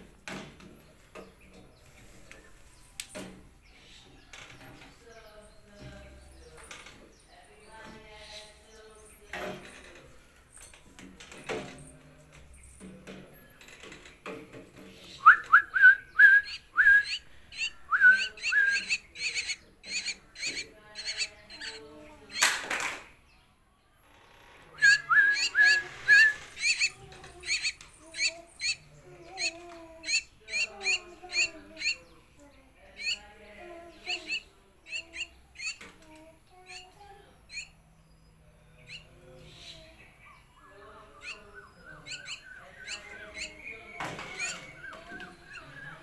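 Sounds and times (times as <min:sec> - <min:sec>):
bird soft chatter: 0:00.8 - 0:23.4, 0:24.4 - 0:46.0
bird warbling: 0:15.3 - 0:22.6, 0:24.8 - 0:32.1, 0:34.0 - 0:35.9, 0:38.8 - 0:46.0
myna chirps and squawks: 0:16.4 - 0:22.5, 0:24.8 - 0:32.0, 0:33.0 - 0:33.2, 0:34.0 - 0:35.8, 0:36.7 - 0:37.8, 0:41.1 - 0:46.0.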